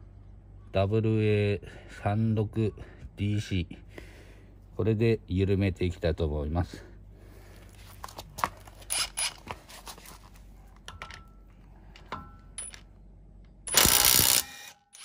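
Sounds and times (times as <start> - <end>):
impact wrench hammering: 13.7 - 15.0.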